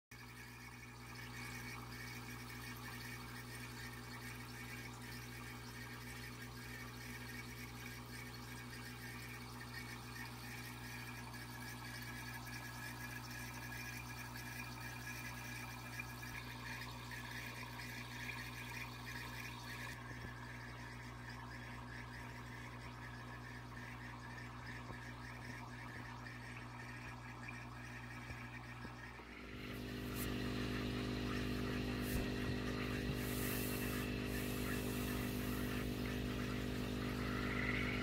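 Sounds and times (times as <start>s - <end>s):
water trickling: 0.1s - 38.0s
low motor hum: 0.2s - 38.0s.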